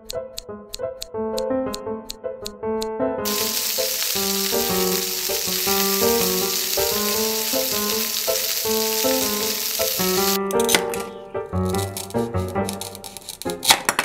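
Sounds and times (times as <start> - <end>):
sharp click: 0.0 - 2.9
background music: 0.0 - 14.0
frying sizzle: 3.2 - 10.4, 11.6 - 13.6.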